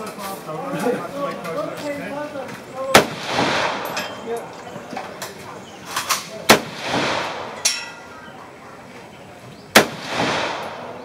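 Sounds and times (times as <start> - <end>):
rifle shots with echo: 2.9 - 4.2, 6.4 - 8.1, 9.7 - 11.0.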